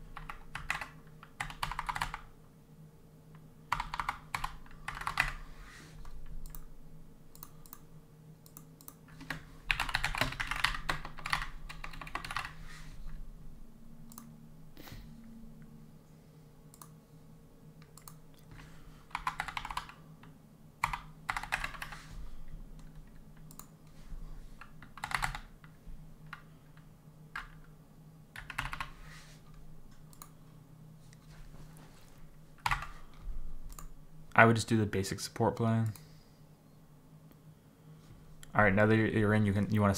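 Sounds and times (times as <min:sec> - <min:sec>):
typing on computer keyboard: 0:00.0 - 0:02.3, 0:03.7 - 0:05.4, 0:08.4 - 0:12.6, 0:19.1 - 0:20.0, 0:20.8 - 0:22.0, 0:24.6 - 0:25.7, 0:28.4 - 0:29.0, 0:32.6 - 0:32.9
faint low hum: 0:00.0 - 0:39.9.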